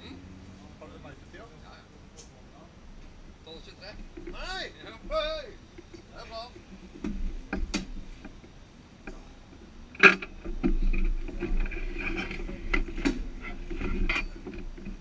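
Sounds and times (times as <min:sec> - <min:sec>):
steady low hum: 0:00.0 - 0:15.0
knocks and clicks against car body: 0:06.8 - 0:08.5.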